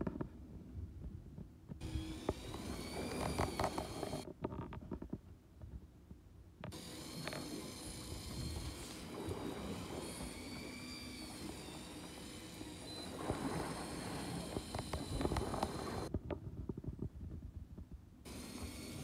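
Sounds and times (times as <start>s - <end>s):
low rumble on boat: 0.0s - 19.0s
electric fishing reel whine: 1.8s - 4.3s, 6.7s - 16.1s, 18.3s - 19.0s.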